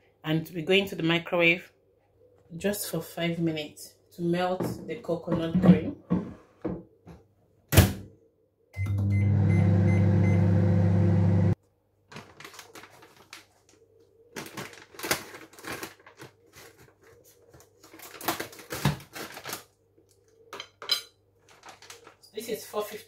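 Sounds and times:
microwave oven humming: 8.8s - 11.6s
plastic bag rustling: 12.0s - 20.0s, 21.4s - 23.0s.

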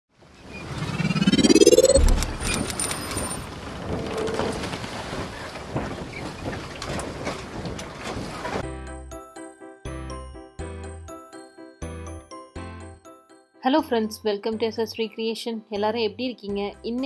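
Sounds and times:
rising whoosh: 0.5s - 2.9s.

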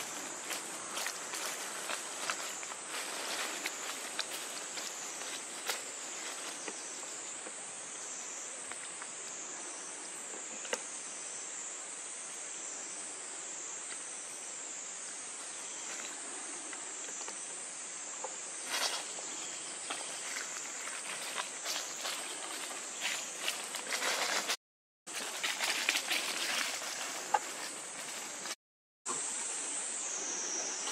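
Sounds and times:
rustle of dry leaves: 0.0s - 7.4s, 18.5s - 28.6s
high-pitched insect chorus: 0.0s - 30.9s.

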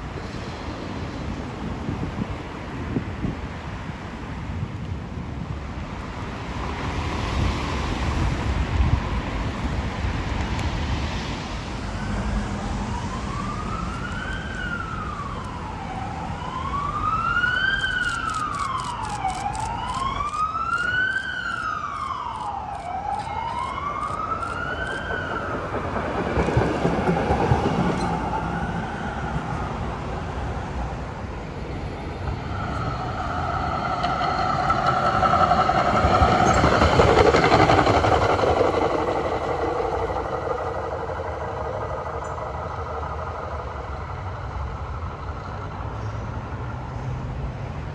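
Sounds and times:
traffic rumble: 0.0s - 47.9s
wind noise: 0.0s - 47.9s
emergency siren wailing: 11.8s - 30.7s, 31.4s - 45.9s.

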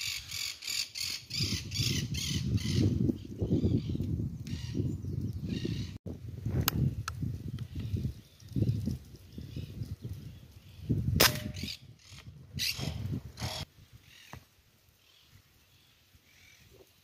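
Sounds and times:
air rifle shot: 11.2s - 11.7s.

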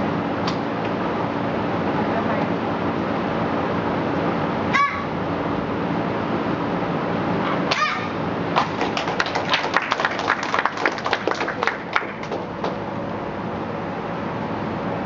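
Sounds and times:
child shouting: 4.7s - 5.2s, 7.7s - 8.2s
people clapping: 8.5s - 12.8s.

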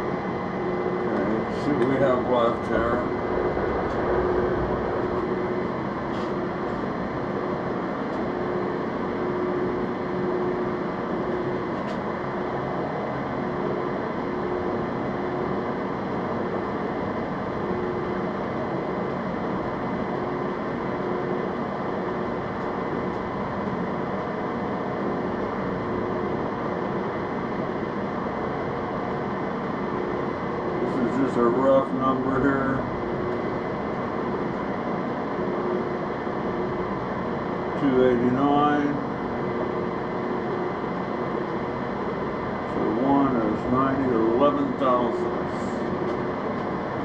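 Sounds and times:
machine tool droning: 0.0s - 27.2s.

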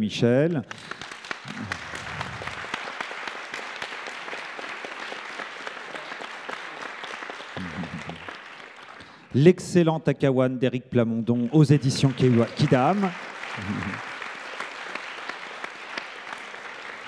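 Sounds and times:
audience applauding: 0.7s - 9.5s, 11.4s - 17.0s.

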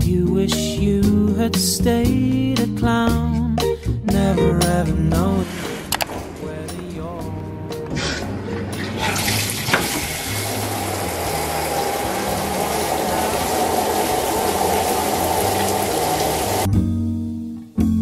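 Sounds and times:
shower water spraying: 7.9s - 16.7s.

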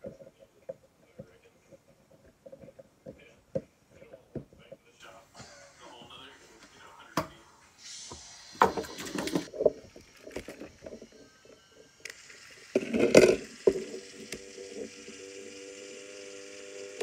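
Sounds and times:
steady low hum: 9.5s - 17.0s
plastic toy clicking and rattling: 11.9s - 16.6s.

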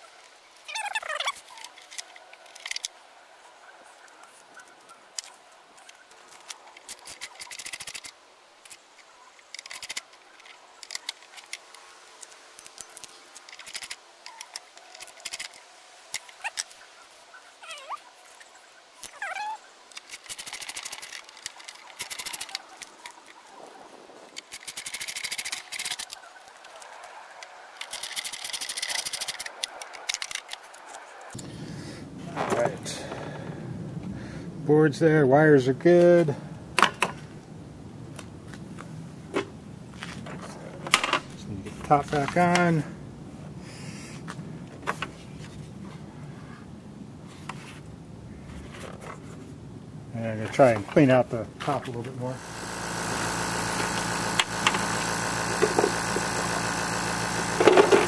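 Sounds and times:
plastic parts clicking and rustling: 0.8s - 3.0s, 4.5s - 16.8s, 19.9s - 23.4s, 24.3s - 31.4s, 51.8s - 58.0s
screwdriver rapid clicking: 19.9s - 22.9s, 24.4s - 26.2s, 27.8s - 30.6s, 52.4s - 58.0s.

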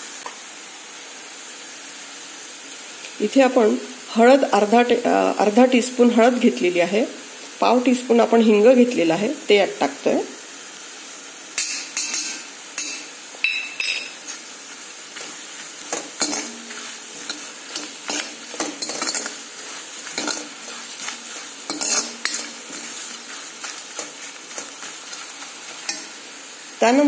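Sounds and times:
food sizzling in hot oil: 0.0s - 27.0s
ladle scraping and knocking on pan: 15.1s - 26.2s.

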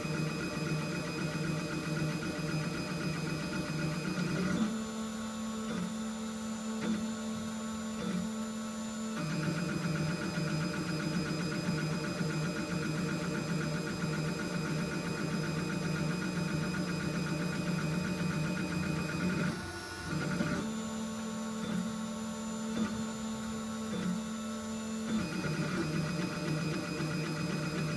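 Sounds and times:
printer stepper motors humming: 0.0s - 27.9s.

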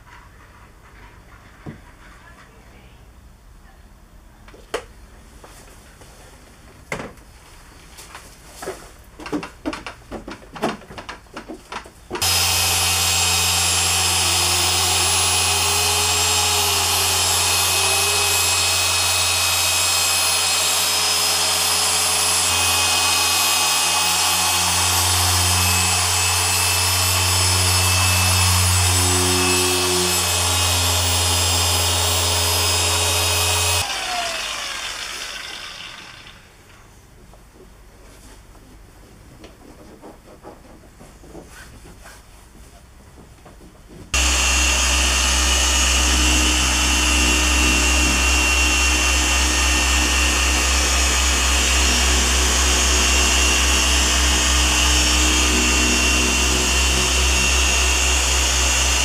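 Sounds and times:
machine polisher running: 12.2s - 36.4s, 44.2s - 59.0s.

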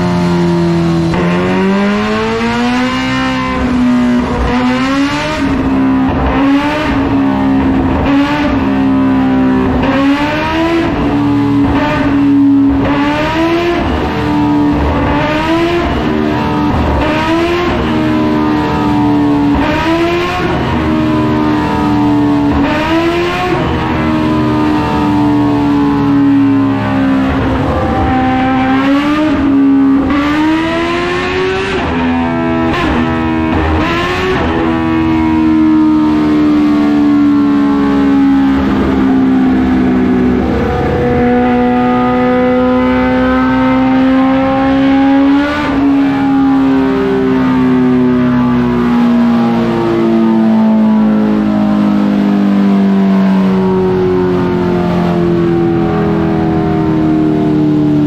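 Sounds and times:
motorcycle engine revving: 0.0s - 52.3s.

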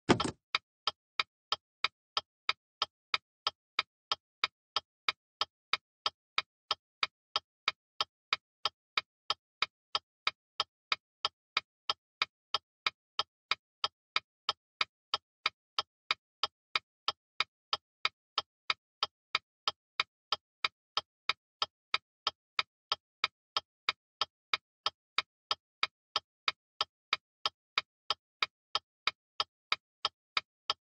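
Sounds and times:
car turn signal clicking: 0.1s - 0.4s.

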